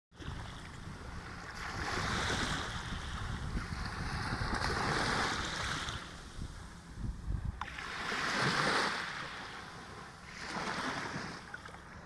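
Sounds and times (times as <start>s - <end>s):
small waves washing on beach: 0.1s - 12.0s
wind buffeting microphone: 0.2s - 8.8s.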